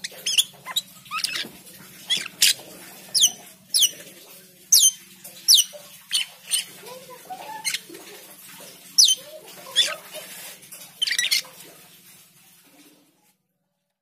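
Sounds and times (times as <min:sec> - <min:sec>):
soft bird chattering: 0:00.0 - 0:01.5, 0:02.1 - 0:04.0, 0:04.7 - 0:06.8, 0:09.0 - 0:10.1, 0:11.0 - 0:11.4.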